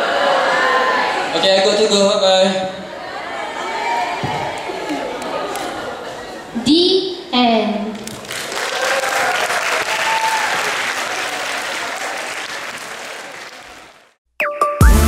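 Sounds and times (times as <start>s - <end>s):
audience applauding: 3.6s - 6.1s, 8.0s - 14.2s.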